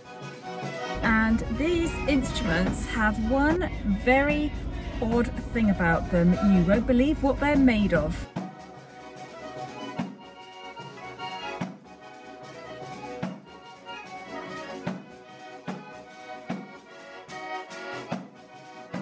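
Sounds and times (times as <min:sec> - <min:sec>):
background music with steady beat: 0:00.0 - 0:19.0.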